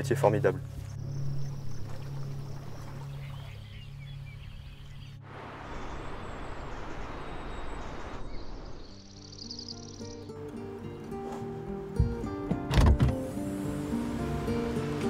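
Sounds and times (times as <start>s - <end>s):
river rushing over rocks: 13.3s - 15.0s.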